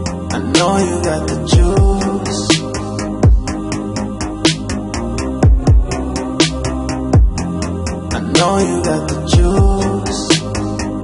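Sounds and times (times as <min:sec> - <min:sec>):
electronic music with steady beat: 0:00.0 - 0:11.0
deep bass hits dropping in pitch: 0:01.6 - 0:07.8.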